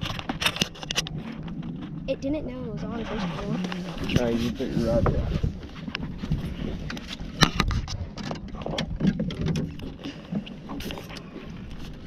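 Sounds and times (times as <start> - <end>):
wind rumble on microphone: 0.0 - 12.0
fishing gear knocking against boat: 7.4 - 10.8.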